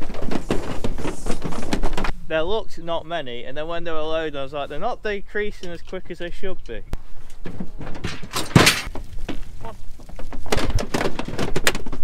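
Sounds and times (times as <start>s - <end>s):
sheep hooves clattering on ramp: 0.0s - 2.1s, 7.4s - 12.0s.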